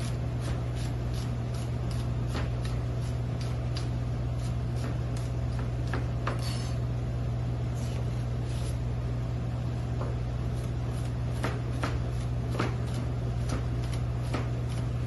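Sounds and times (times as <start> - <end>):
knife chopping on cutting board: 0.0 - 6.8, 10.0 - 14.9
low machine hum: 0.0 - 15.0.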